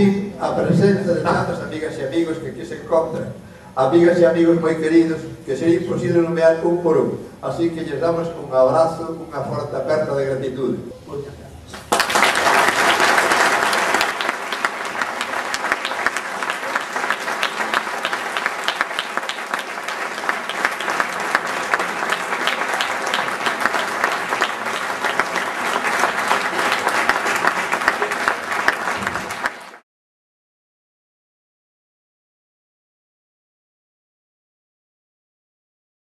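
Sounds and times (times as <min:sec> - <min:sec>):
audience applauding: 0:11.8 - 0:29.8.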